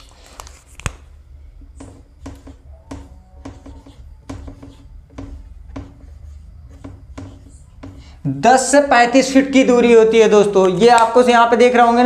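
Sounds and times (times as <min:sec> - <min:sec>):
marker squeaking on whiteboard: 0:00.0 - 0:09.2
low steady hum: 0:00.0 - 0:10.8.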